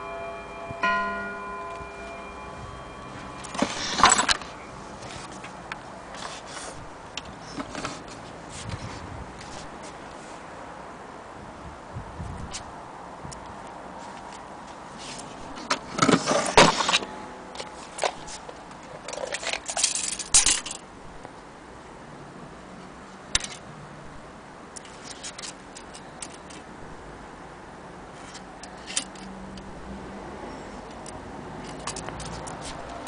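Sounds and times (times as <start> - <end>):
tape measure rattling and clicking: 18.0 - 20.8, 24.8 - 26.6, 31.6 - 33.0.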